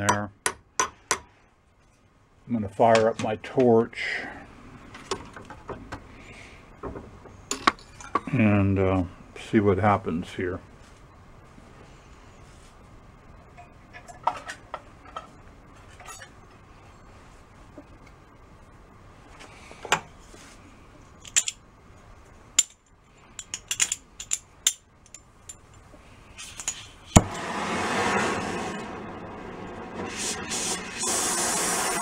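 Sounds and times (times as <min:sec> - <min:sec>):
metal parts clinking: 0:21.2 - 0:21.6, 0:22.6 - 0:25.8
torch flame hissing: 0:27.1 - 0:32.0
torch lighting crack: 0:27.1 - 0:32.0.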